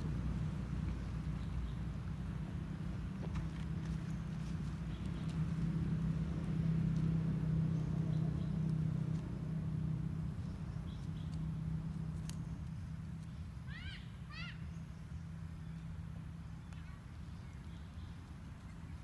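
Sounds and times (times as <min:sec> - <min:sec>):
motor engine hum: 0:00.0 - 0:19.0
faint clicks: 0:12.1 - 0:13.3.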